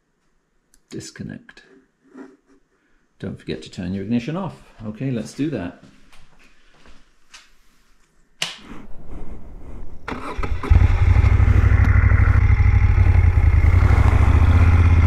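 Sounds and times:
motorcycle engine running: 10.4 - 15.0.

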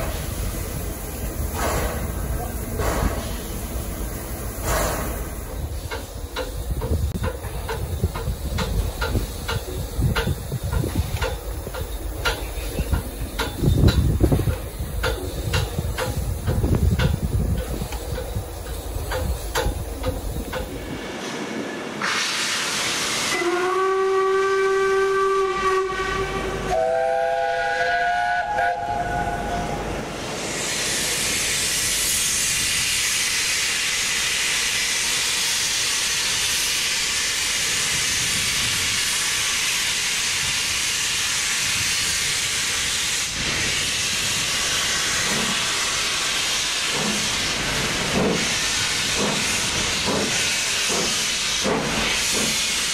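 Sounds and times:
steam hissing: 0.0 - 52.9
chord steam whistle: 22.0 - 29.9
single-note steam whistle: 23.2 - 29.9.

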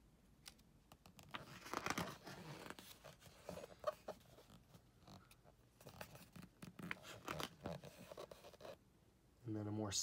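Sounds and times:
book page rustling: 0.9 - 8.8.

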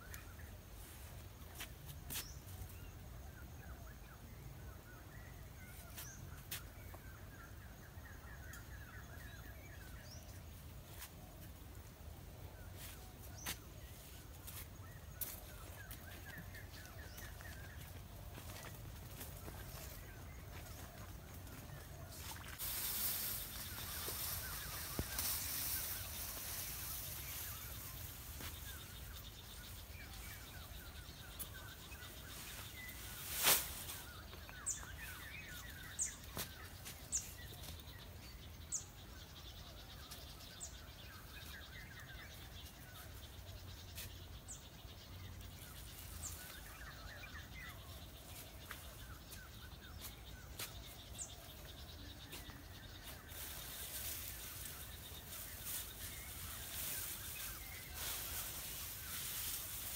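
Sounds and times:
birds twittering: 0.0 - 59.9
dry grass rustling: 12.7 - 38.0, 42.3 - 59.9.

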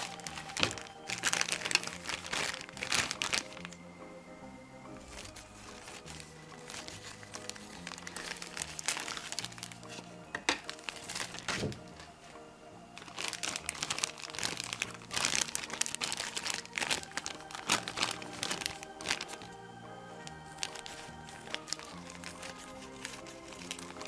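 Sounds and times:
scissors cutting plastic: 0.0 - 3.7
plastic bags crinkling: 0.0 - 3.8, 5.0 - 24.0
background music: 0.0 - 24.0.

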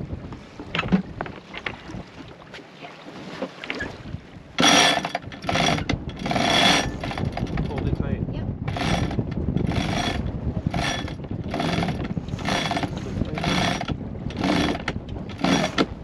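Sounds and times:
winch ratcheting: 4.6 - 7.9, 8.7 - 16.0.

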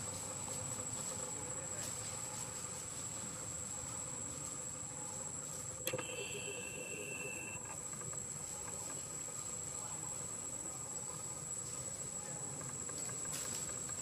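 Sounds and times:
outdoor background hiss: 0.0 - 14.0
high-pitched insect drone: 3.6 - 14.0
lower steady tone: 4.8 - 7.8.

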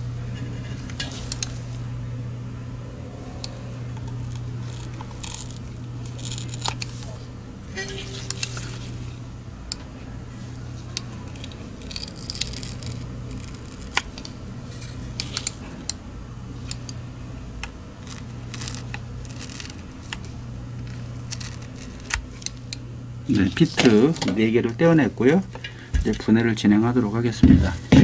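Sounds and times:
steady low hum: 0.0 - 28.0
adhesive scraping and tearing: 4.0 - 7.2, 11.2 - 15.6, 18.0 - 20.2, 20.8 - 22.6.

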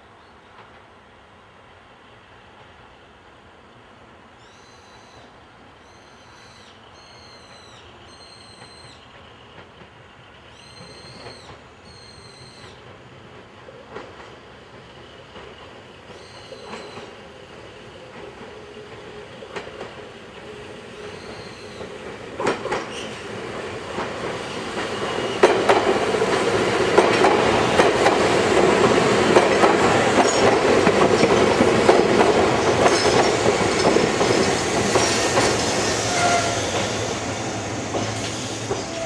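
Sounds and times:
train wheels clacking over rails: 7.4 - 39.0
high wheel squeals: 35.0 - 37.1.

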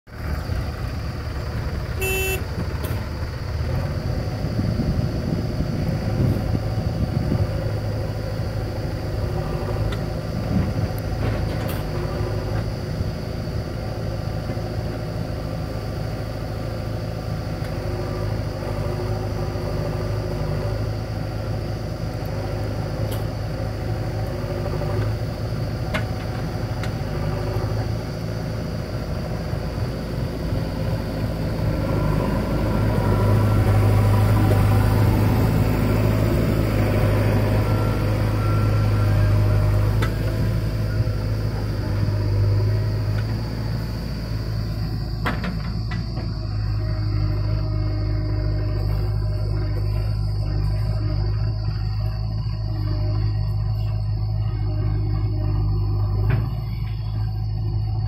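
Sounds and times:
diesel engines running: 0.0 - 58.0.

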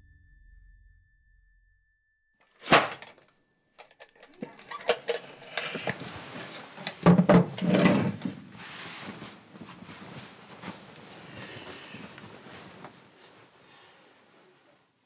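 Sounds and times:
bedding rustling: 4.2 - 15.0.

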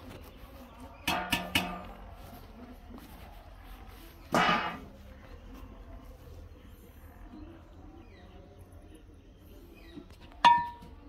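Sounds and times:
metal pot clanking: 1.0 - 1.9, 4.3 - 4.9, 10.4 - 10.9.

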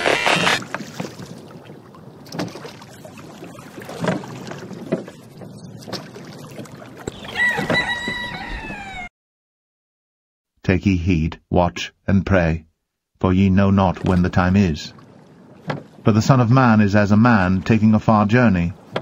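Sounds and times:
paddle strokes: 0.0 - 8.2, 14.0 - 16.2, 18.7 - 19.0
water sloshing against boat: 0.0 - 8.9, 13.8 - 19.0
rooster crowing: 7.2 - 9.1.

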